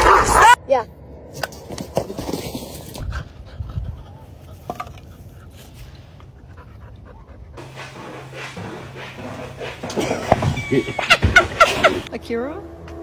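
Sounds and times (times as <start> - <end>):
dog panting: 6.3 - 10.9.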